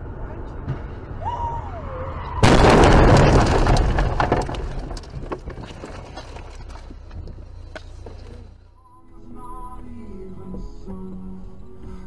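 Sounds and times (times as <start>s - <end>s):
knocks and rattles: 2.4s - 8.3s
car crash impact crunching: 2.4s - 8.4s.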